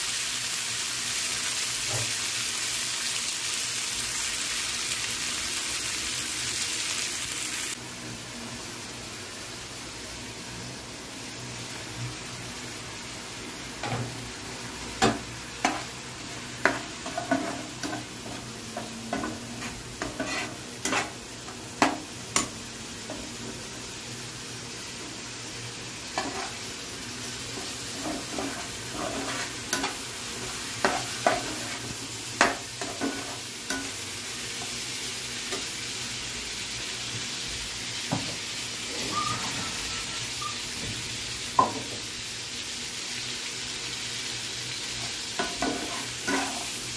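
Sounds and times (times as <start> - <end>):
food sizzling: 0.0 - 46.9
spatula scraping a pan: 15.0 - 22.5, 26.1 - 26.7, 27.5 - 33.9, 45.4 - 46.8.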